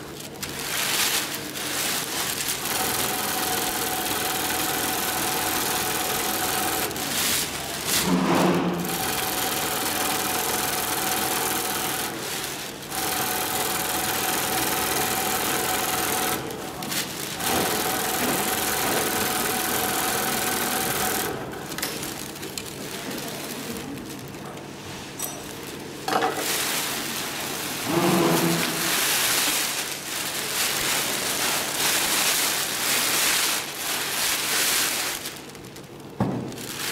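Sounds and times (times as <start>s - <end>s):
sewing machine stitching: 2.5s - 21.5s.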